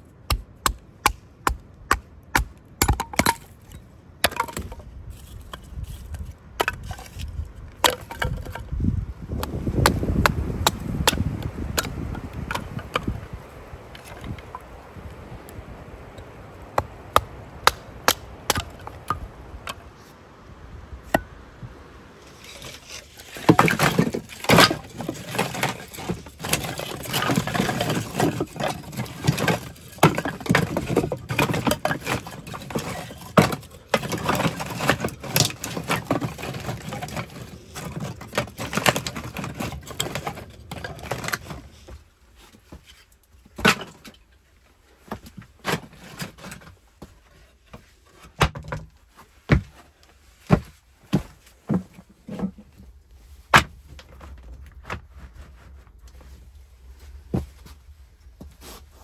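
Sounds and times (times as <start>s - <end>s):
firewood sticks clattering: 0.6s - 15.0s, 16.0s - 20.0s, 22.2s - 44.4s
axe splitting kindling: 22.4s - 41.6s.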